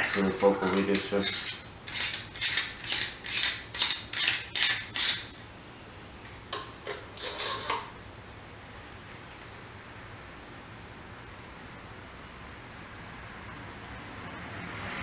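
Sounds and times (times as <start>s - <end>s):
metal screw threads rasping: 0.0s - 5.4s, 7.2s - 7.8s.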